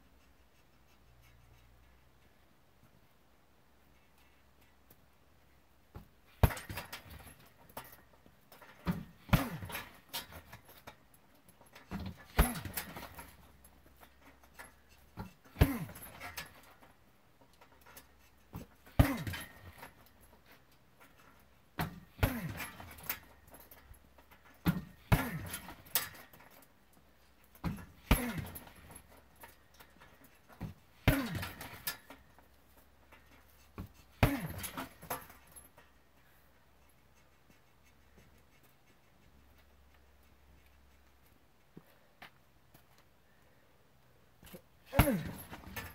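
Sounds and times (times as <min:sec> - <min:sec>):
kicks thudding on heavy bag: 0:05.9 - 0:07.4, 0:08.8 - 0:10.5, 0:11.9 - 0:13.3, 0:15.2 - 0:16.5, 0:18.6 - 0:19.8, 0:21.8 - 0:23.1, 0:24.6 - 0:26.1, 0:27.6 - 0:29.0, 0:30.6 - 0:31.9, 0:33.8 - 0:35.3, 0:44.9 - 0:45.9
bag chain rattle: 0:44.9 - 0:45.9.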